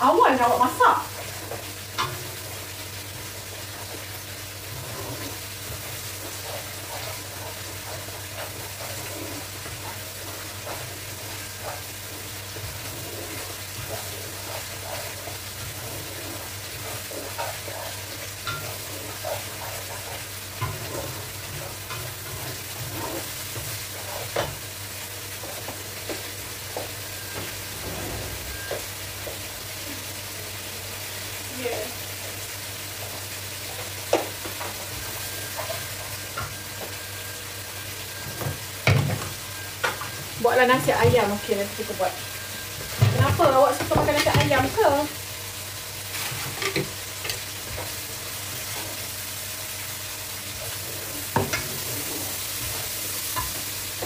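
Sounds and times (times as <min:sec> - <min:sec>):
curry sizzling in a wok: 0:00.0 - 0:54.0
spatula scraping and knocking pan: 0:00.5 - 0:29.6, 0:38.1 - 0:45.0, 0:50.5 - 0:54.0.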